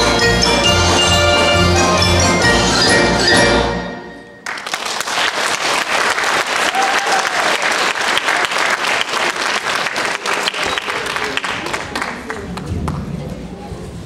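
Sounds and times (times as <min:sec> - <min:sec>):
audience applause: 0:04.4 - 0:13.1.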